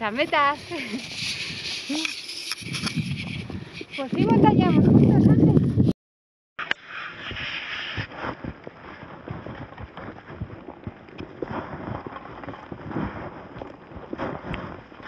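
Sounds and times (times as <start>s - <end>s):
footsteps crunching in snow: 6.9s - 15.0s.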